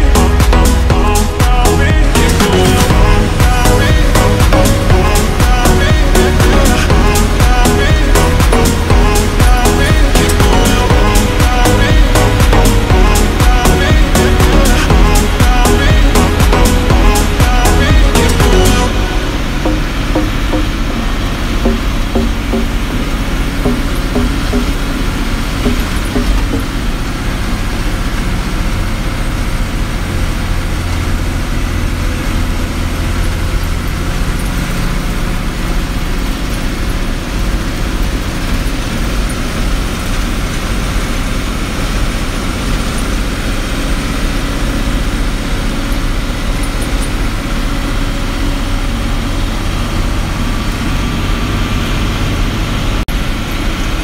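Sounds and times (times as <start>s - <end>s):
bus engine hum: 0.0s - 54.0s
road and rattle noise: 0.0s - 54.0s.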